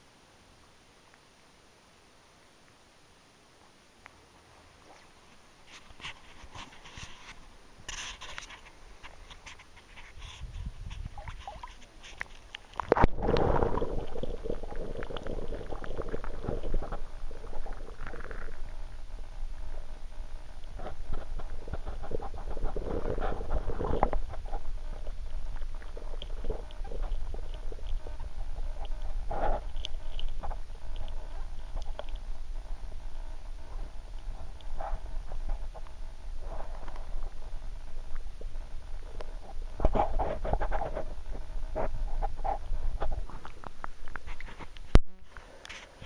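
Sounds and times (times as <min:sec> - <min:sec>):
underwater rumble of moving water: 0:04.5 - 0:44.9.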